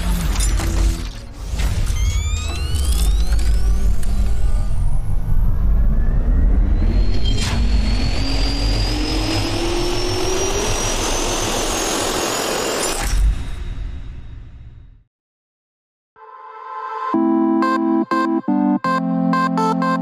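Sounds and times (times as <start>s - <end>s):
jet turbine spooling up: 4.2s - 12.8s.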